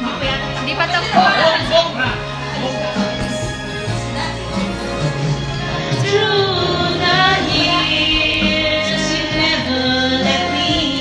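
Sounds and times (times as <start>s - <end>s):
backing track music: 0.0s - 11.0s
woman singing into a microphone: 6.0s - 11.0s.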